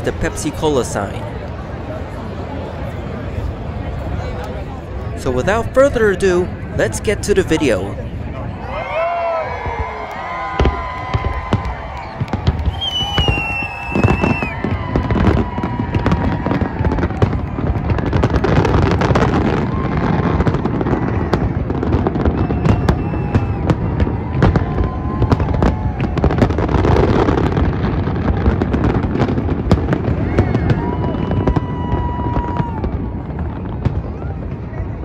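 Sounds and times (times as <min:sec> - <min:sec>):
fireworks bangs and crackles: 0:00.0 - 0:35.0.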